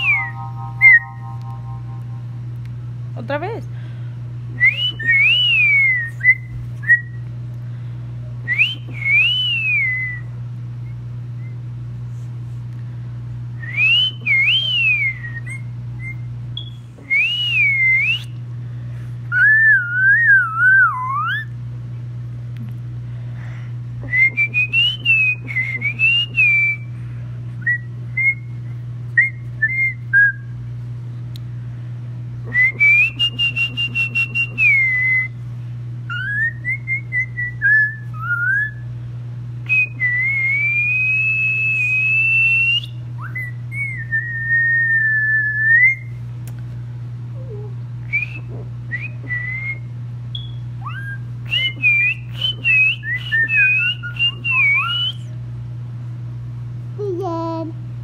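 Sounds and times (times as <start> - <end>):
boy whistling: 0.0 - 1.2, 4.6 - 7.2, 8.5 - 10.3, 13.6 - 18.4, 24.0 - 26.9, 32.5 - 35.4, 39.7 - 46.1, 47.4 - 55.3.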